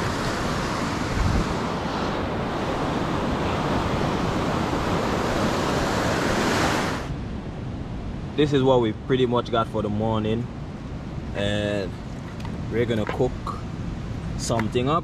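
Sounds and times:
ocean surf breaking: 0.0 - 9.6
wind rumbling on microphone: 0.0 - 15.0.

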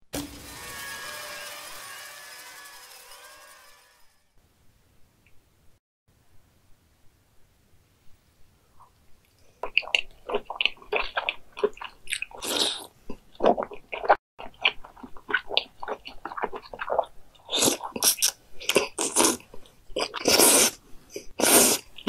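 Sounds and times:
chewing smacks: 9.3 - 22.0
wet slurping and sucking: 9.6 - 22.0.

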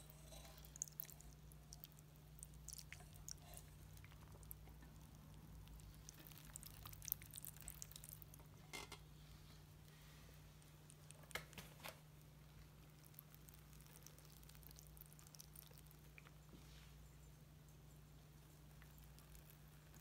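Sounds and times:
low steady hum: 0.0 - 20.0
water dripping onto pebbles: 0.3 - 8.5, 10.9 - 16.4.

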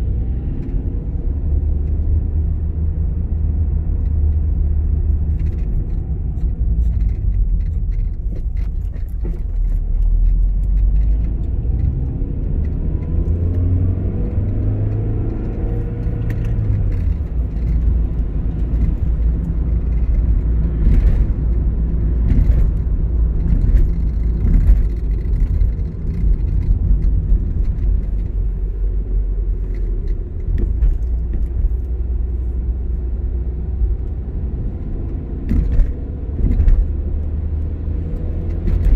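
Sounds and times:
car engine and road noise: 0.0 - 38.9.

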